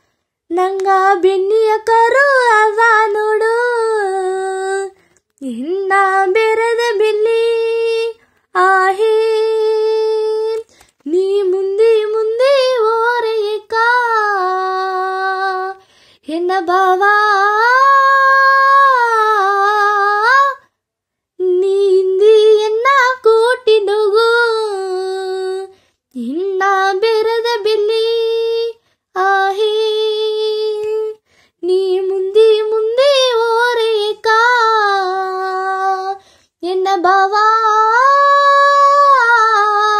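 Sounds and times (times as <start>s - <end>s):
girl singing unaccompanied: 0.0s - 20.7s, 21.4s - 39.9s.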